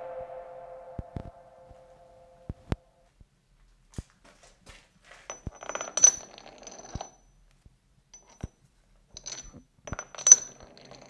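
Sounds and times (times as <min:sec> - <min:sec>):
screws clinking on steel block: 0:05.3 - 0:07.4, 0:08.2 - 0:11.0.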